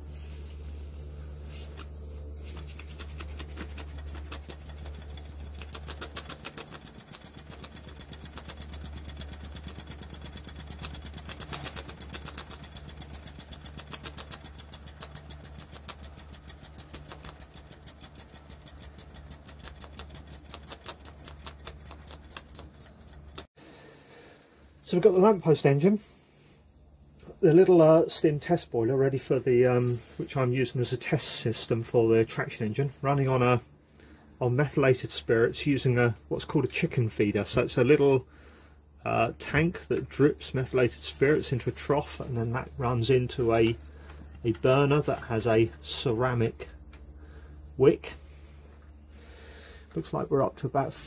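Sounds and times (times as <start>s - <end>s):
steady low hum: 0.0s - 51.0s
model steam engine exhaust beating: 3.8s - 23.5s.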